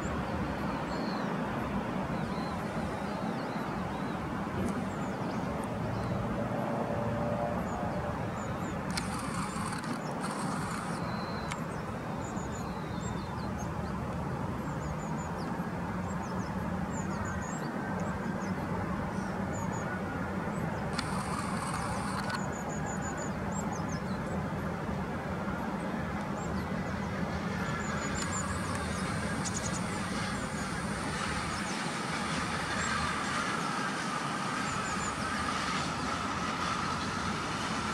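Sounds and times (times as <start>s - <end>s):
small birds chirping: 8.3s - 14.0s, 20.5s - 24.4s, 26.3s - 35.8s
train motor whine: 8.9s - 11.5s, 21.0s - 22.5s
train low rumble: 18.0s - 37.9s.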